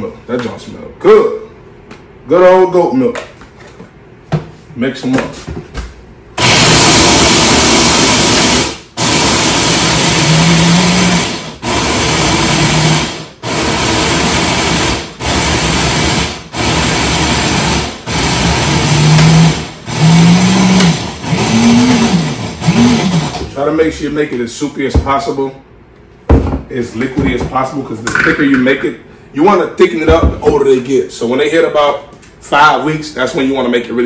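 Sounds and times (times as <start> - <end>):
blender pulsing: 6.4 - 23.6.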